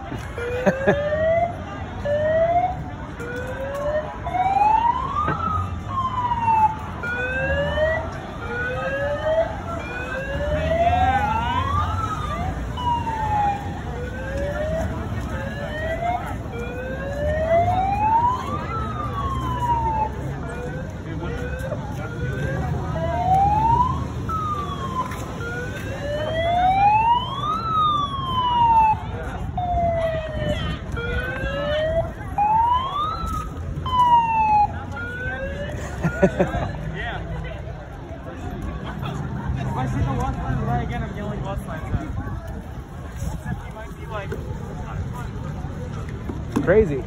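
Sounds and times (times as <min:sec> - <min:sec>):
sirens wailing: 0:00.2 - 0:36.8.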